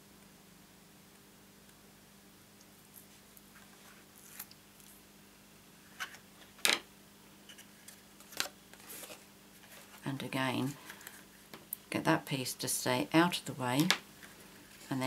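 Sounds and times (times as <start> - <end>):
faint steady hum: 0.0 - 15.0
cardstock rustling: 7.8 - 10.0.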